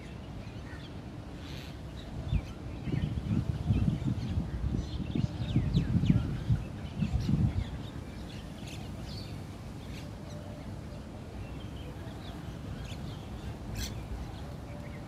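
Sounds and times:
small birds chirping: 0:00.0 - 0:15.0
wind buffeting microphone: 0:01.8 - 0:15.0.

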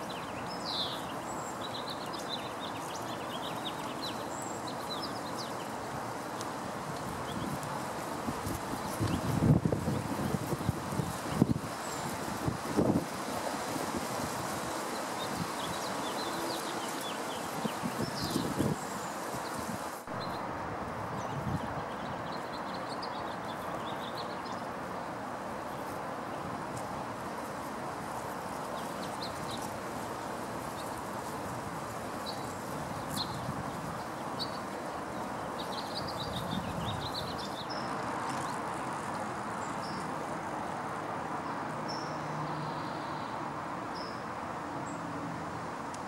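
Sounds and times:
small birds chirping: 0:00.0 - 0:13.4, 0:14.2 - 0:20.4, 0:21.1 - 0:24.8, 0:28.2 - 0:40.2.

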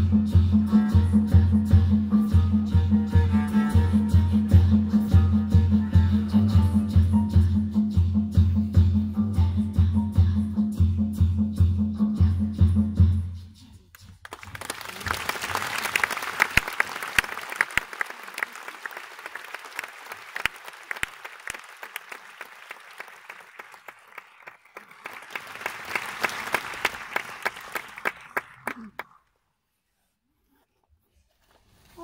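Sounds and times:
audience applauding: 0:14.2 - 0:29.2.

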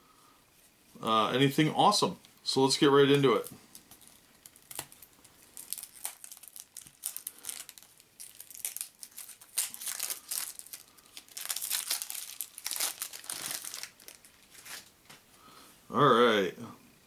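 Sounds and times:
cellophane crinkling and tearing: 0:03.2 - 0:15.2.

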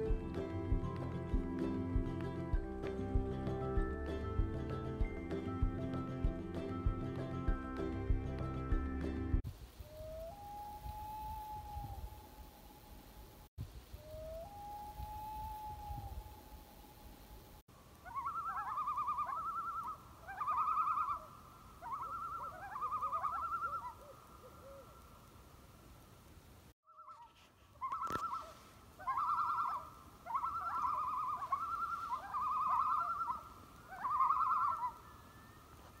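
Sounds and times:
loon tremolo calls: 0:18.0 - 0:25.2, 0:26.9 - 0:36.0.

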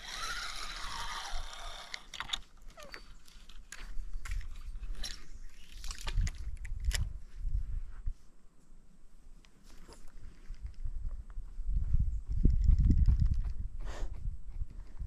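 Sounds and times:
fishing reel whirring: 0:00.0 - 0:02.2
reel clicks: 0:00.0 - 0:02.4
wind rumbling on microphone: 0:03.8 - 0:08.3, 0:10.0 - 0:15.0.

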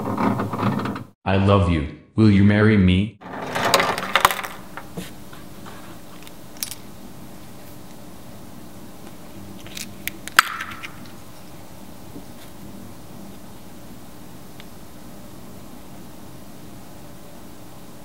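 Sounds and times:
hand scraping wooden opening: 0:00.0 - 0:01.1
faint steady hum: 0:03.4 - 0:18.0.

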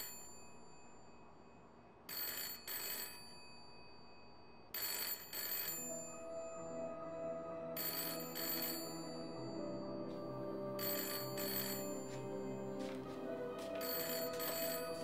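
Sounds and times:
telephone bell ringing: 0:00.0 - 0:01.1, 0:02.1 - 0:06.7, 0:07.7 - 0:10.0, 0:10.7 - 0:12.2, 0:13.7 - 0:15.0
soft background music: 0:05.7 - 0:15.0.

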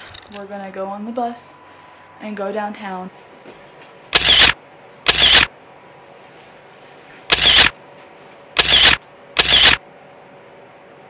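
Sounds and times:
camera shutter snaps: 0:04.2 - 0:05.5, 0:07.3 - 0:07.7, 0:08.6 - 0:09.8.

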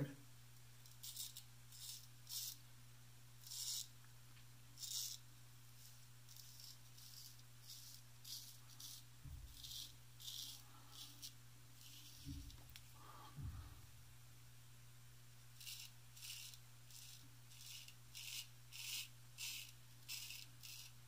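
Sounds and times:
faint steady hum: 0:00.0 - 0:21.0
razor scraping stubble: 0:00.8 - 0:02.6, 0:03.4 - 0:03.9, 0:04.8 - 0:12.9, 0:15.5 - 0:21.0.

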